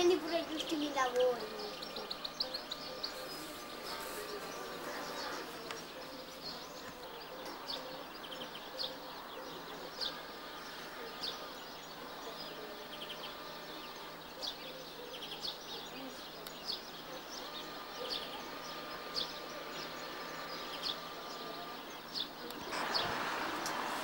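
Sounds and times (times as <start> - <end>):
small birds chirping: 0.0 - 24.0.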